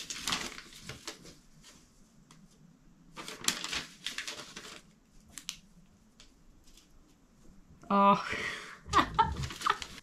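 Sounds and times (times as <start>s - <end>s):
paper rustling and crinkling: 0.0s - 5.6s, 6.2s - 7.2s, 9.0s - 10.0s.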